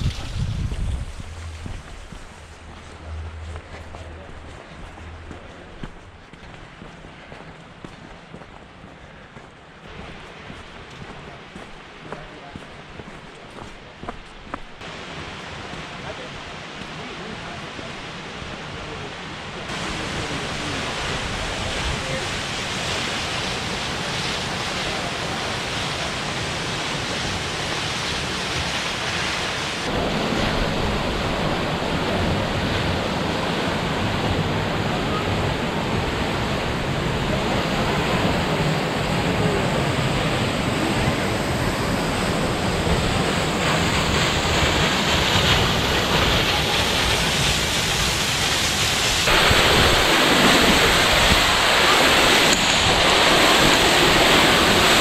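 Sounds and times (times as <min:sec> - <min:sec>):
waterfall splashing down: 0:00.0 - 0:04.5, 0:19.7 - 0:55.0.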